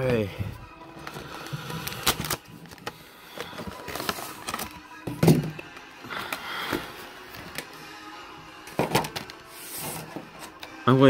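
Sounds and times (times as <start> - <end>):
plastic and cardboard packaging crinkling: 1.0 - 5.6.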